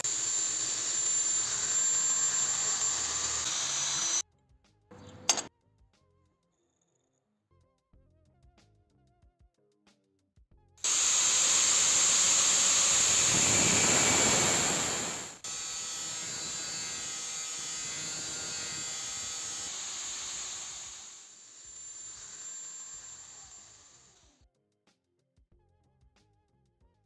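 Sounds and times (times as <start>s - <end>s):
angle grinder cutting steel: 0.0s - 4.2s, 10.8s - 24.2s.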